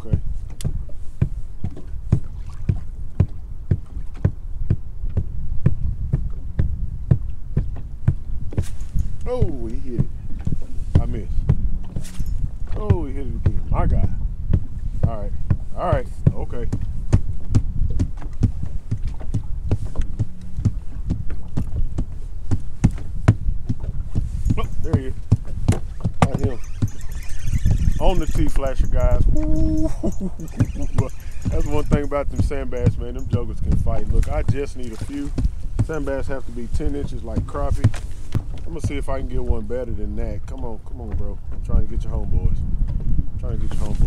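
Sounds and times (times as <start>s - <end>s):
feet stomping on boat floor: 0.2s - 8.6s
low rumble: 9.9s - 37.9s.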